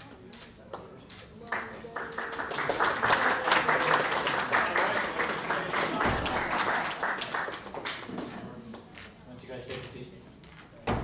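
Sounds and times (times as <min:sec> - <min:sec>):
crowd applauding: 0:01.4 - 0:08.4.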